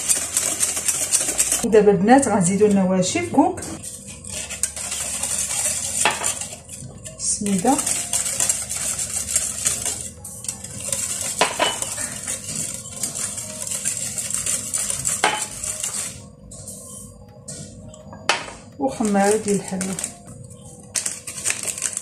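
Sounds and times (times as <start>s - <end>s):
whisk scraping glass bowl: 0.0s - 17.0s.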